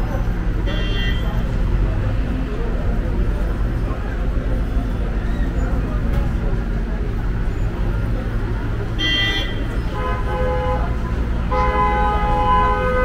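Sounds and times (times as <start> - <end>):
street traffic rumble: 0.0 - 13.0
car horns honking: 0.6 - 1.4, 8.9 - 13.0.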